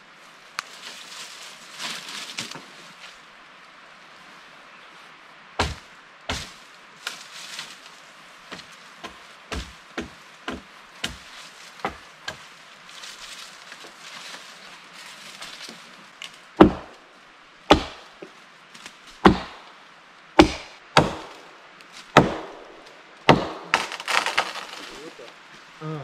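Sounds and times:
axe blows chopping log: 16.6s - 16.9s, 17.7s - 18.0s, 19.2s - 19.6s, 20.4s - 21.4s, 22.2s - 22.6s, 23.3s - 24.5s.

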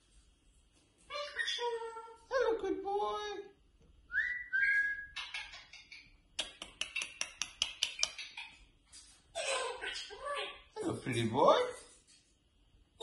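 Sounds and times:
cockatoo whistles: 4.1s - 5.2s.

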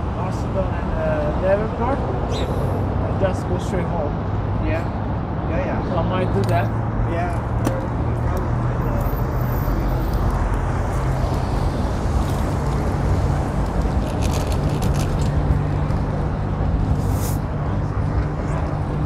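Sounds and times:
bicycle rolling noise: 11.0s - 16.2s.

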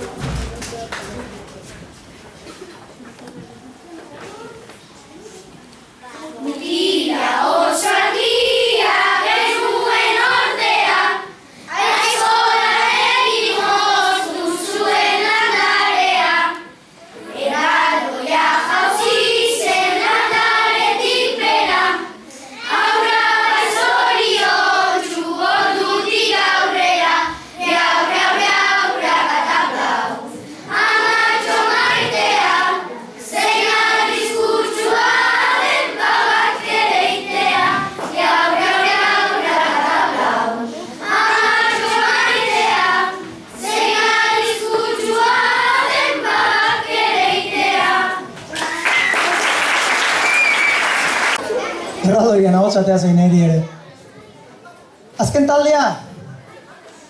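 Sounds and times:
children singing in unison: 6.4s - 48.7s.

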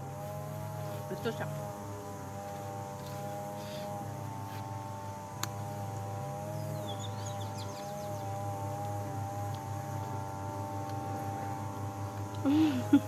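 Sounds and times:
bird chirping trill: 6.5s - 8.5s.

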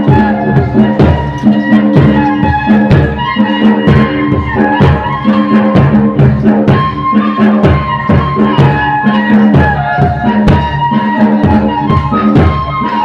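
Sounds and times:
drum beats: 0.0s - 13.0s
reedy wind instrument melody: 0.0s - 13.0s.

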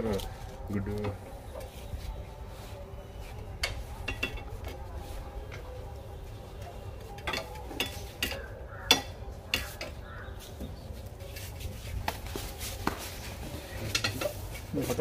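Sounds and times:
metal tongs clinking on iron grille: 3.6s - 4.8s, 7.2s - 10.0s, 13.8s - 14.4s.

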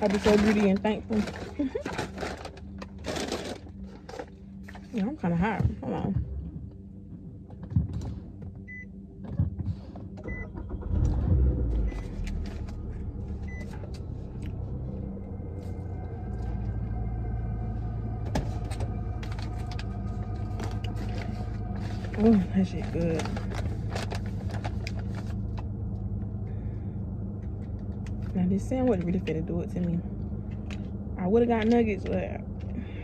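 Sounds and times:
wrapper rustling: 0.0s - 4.9s, 19.2s - 25.6s
car engine starting rumble: 0.0s - 33.0s
engine and climate fan humming: 0.0s - 33.0s.

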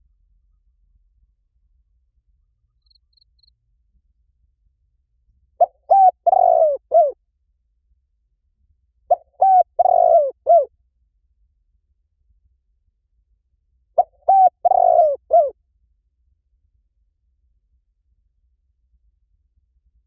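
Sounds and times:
dove cooing: 5.6s - 7.2s, 9.1s - 10.7s, 14.0s - 15.5s.

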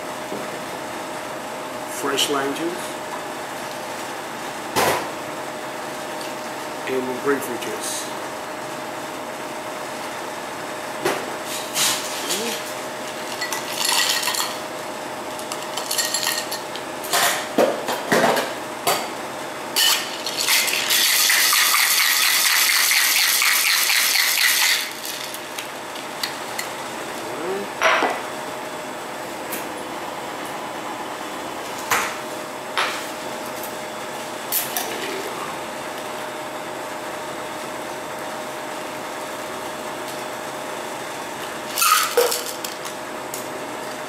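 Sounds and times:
cocktail shaker rattling with ice: 20.2s - 25.4s.

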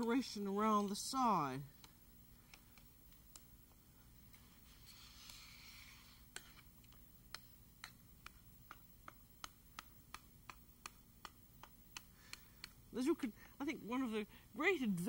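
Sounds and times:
soft hiss: 0.0s - 15.0s.

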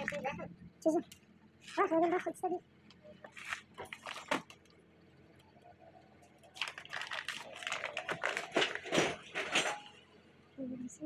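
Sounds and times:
plastic packaging crinkling: 3.3s - 4.7s, 6.4s - 9.8s.

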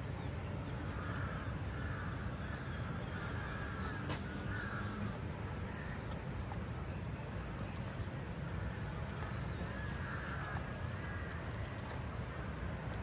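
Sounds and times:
steady low rumble: 0.0s - 13.0s
crow cawing: 0.9s - 6.0s, 9.7s - 12.9s.

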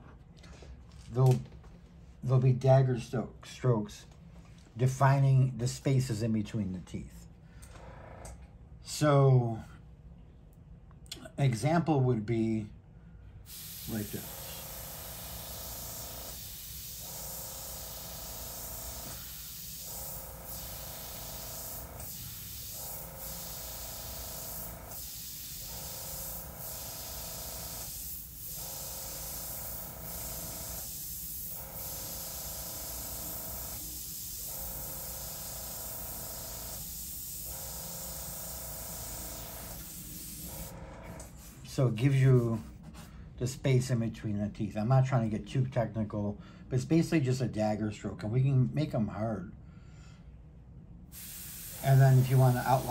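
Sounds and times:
airbrush hissing: 13.5s - 41.7s, 51.1s - 52.9s.

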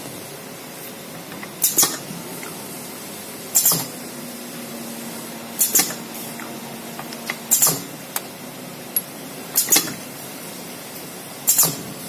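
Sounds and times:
bottling machine hiss: 0.8s - 4.0s, 5.0s - 8.0s, 9.5s - 12.0s
machine clicks: 1.3s - 2.6s, 5.6s - 8.3s, 9.0s - 10.0s.

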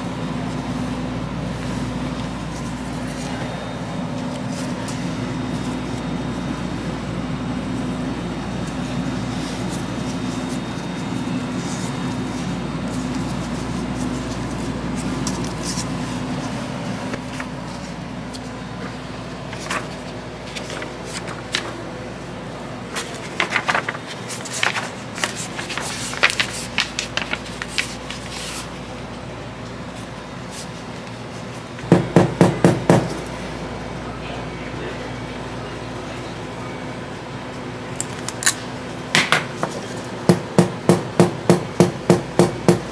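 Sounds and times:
steady hum: 0.0s - 42.9s
stiff paper rustling and crinkling: 8.2s - 22.1s, 22.8s - 29.2s.

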